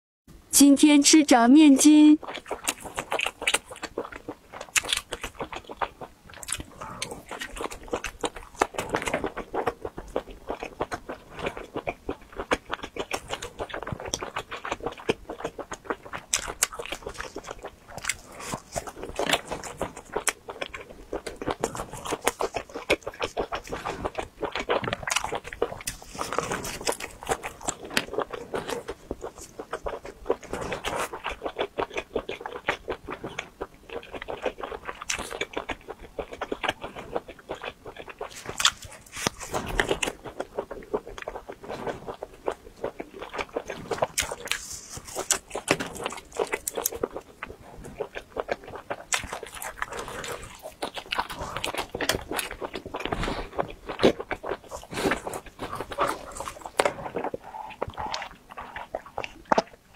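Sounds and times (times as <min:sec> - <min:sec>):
crunchy chewing: 0:02.2 - 0:59.9.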